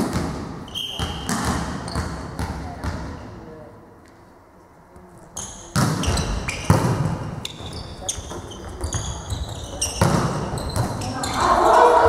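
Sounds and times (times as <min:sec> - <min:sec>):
shoes squeaking on floor: 0:00.7 - 0:02.4, 0:05.4 - 0:12.0
volleyball being hit: 0:10.0 - 0:11.0.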